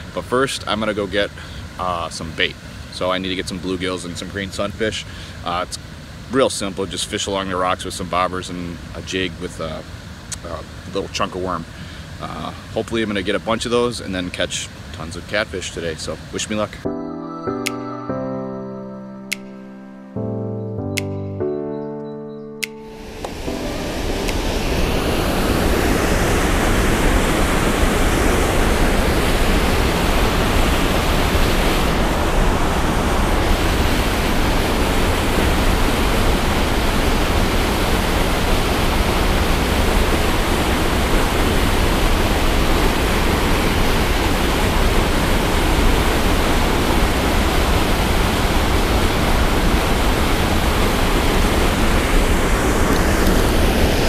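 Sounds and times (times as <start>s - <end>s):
water rushing over spillway: 23.2s - 54.0s.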